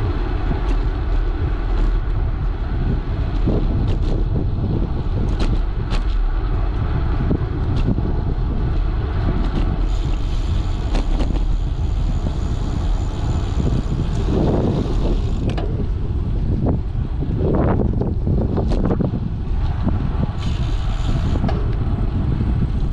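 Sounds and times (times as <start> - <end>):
wind buffeting microphone: 0.0 - 22.9
thin high whine: 9.7 - 15.5.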